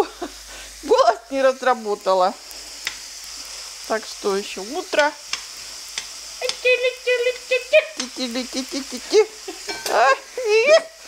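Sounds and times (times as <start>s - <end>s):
onions sizzling in a pan: 0.0s - 11.0s
woman's wordless sliding vocals: 6.4s - 9.4s.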